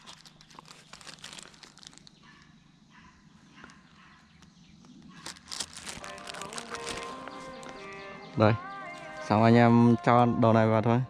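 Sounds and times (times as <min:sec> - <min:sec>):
plastic bag rustling: 0:00.0 - 0:02.5, 0:03.6 - 0:08.0.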